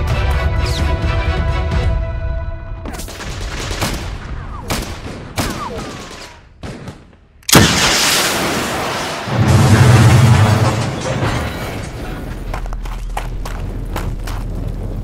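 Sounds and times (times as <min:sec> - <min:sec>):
background music: 0:00.0 - 0:04.5
gunshots and gunfire: 0:02.9 - 0:09.3.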